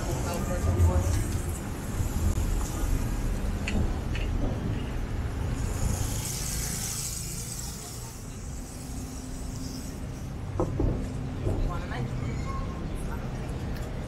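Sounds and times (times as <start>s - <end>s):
low traffic rumble: 0.0s - 14.0s
vehicle passing: 5.3s - 10.3s
tyre noise hiss: 5.6s - 10.4s.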